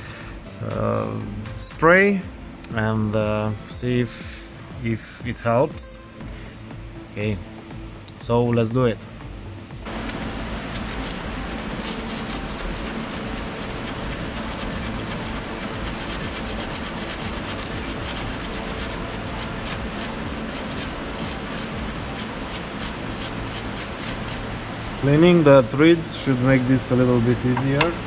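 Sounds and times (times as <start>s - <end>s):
wire brush scrubbing metal bolt: 9.9s - 24.4s.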